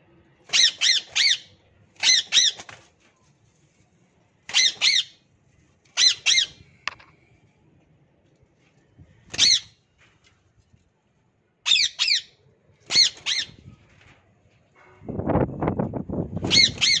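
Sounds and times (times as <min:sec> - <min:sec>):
parrot wings flapping: 0:02.0 - 0:03.0
parakeets squawking: 0:04.5 - 0:05.2, 0:06.0 - 0:06.6, 0:11.7 - 0:12.3, 0:12.9 - 0:13.6, 0:16.5 - 0:17.0.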